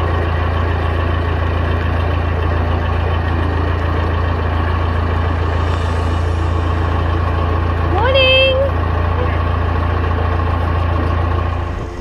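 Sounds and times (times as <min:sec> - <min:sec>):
boat diesel engine humming: 0:00.0 - 0:12.0.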